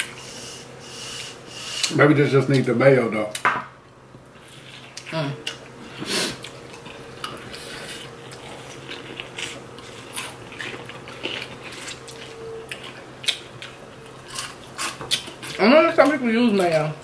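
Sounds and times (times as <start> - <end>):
low steady hum: 0.0 - 17.0
chewing with crunches: 4.3 - 16.9.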